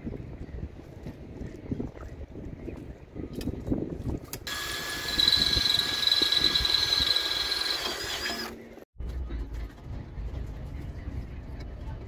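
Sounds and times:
wind rumble on microphone: 0:00.0 - 0:07.2
cordless drill whining: 0:04.5 - 0:08.6.

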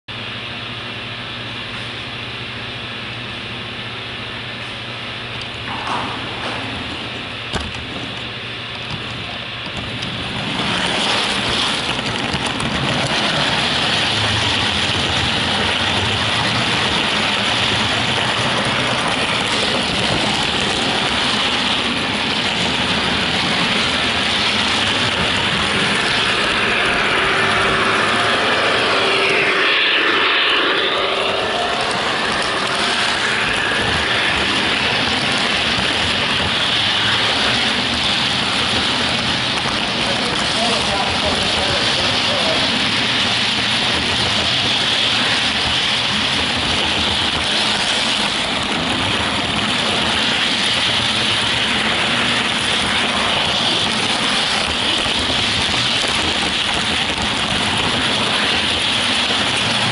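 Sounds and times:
model train wheels rattling on track: 0:08.8 - 0:28.2, 0:31.7 - 0:59.9.

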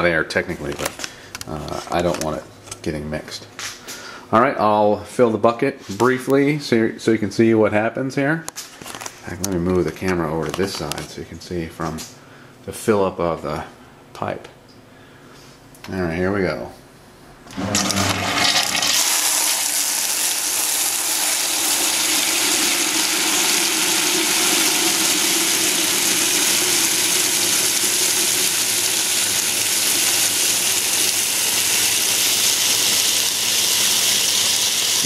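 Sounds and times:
coolant splashing into bucket: 0:17.5 - 0:35.0.

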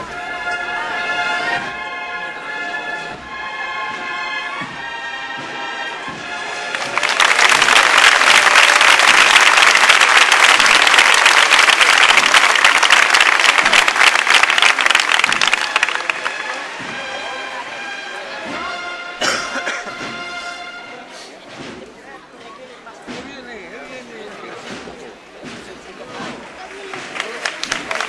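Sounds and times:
brass band playing a march: 0:00.0 - 0:21.8
crowd applauding: 0:06.5 - 0:16.9, 0:26.6 - 0:28.0.

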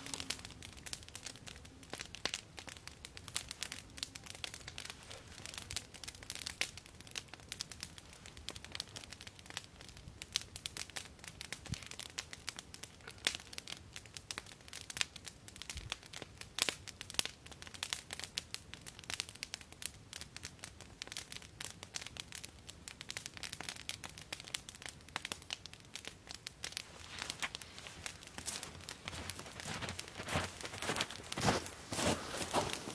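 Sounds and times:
campfire crackling and popping: 0:00.0 - 0:32.9
footsteps crunching in snow: 0:26.9 - 0:32.9.

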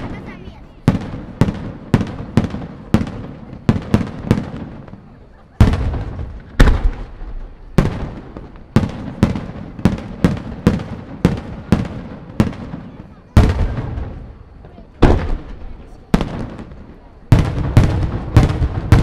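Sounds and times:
deep firework booms: 0:00.0 - 0:19.0
firework shells bursting: 0:05.6 - 0:19.0.

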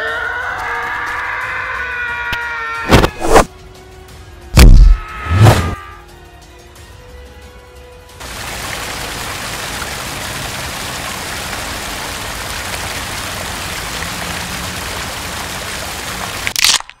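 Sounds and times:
small waterfall splashing: 0:08.2 - 0:16.8.

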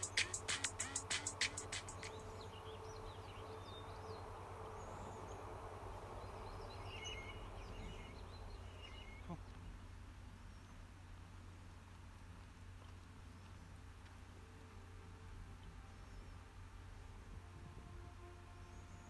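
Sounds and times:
small birds chirping: 0:00.0 - 0:14.2
low outdoor rumble: 0:00.0 - 0:19.0.

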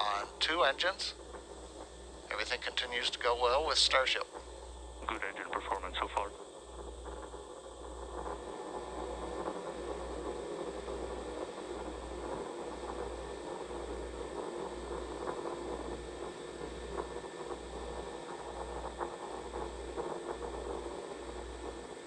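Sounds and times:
rocket engines rumbling: 0:00.0 - 0:16.0.

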